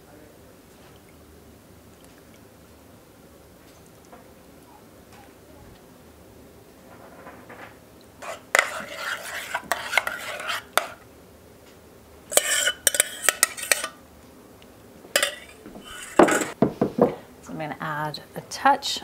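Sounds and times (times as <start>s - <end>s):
metal spoon scraping a metal bowl: 8.2s - 11.0s, 12.3s - 14.0s, 15.2s - 16.6s.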